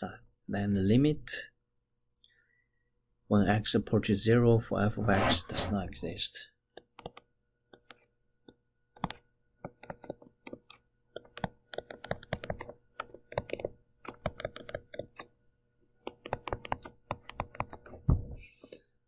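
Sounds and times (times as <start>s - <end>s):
stylus tapping on writing tablet: 6.8s - 15.3s, 16.0s - 18.2s.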